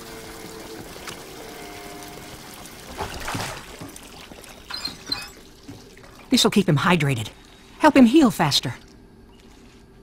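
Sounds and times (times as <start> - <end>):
water running from tap into tub: 0.0 - 6.4.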